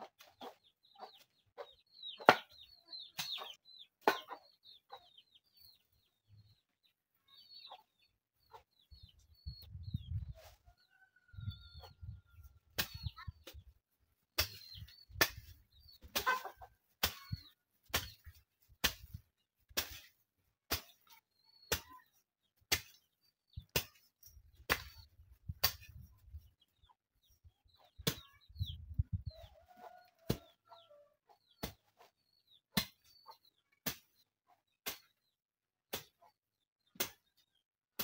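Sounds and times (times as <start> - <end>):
garden hoe chopping soil: 12.7 - 13.7, 14.3 - 26.1, 31.6 - 33.2, 33.8 - 34.2, 34.8 - 35.2, 35.9 - 36.2, 36.9 - 37.3.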